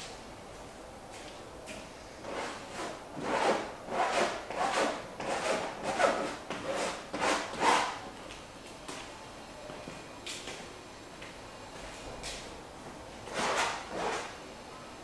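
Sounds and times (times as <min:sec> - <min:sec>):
rough rubbing strokes on canvas: 0:02.2 - 0:08.0.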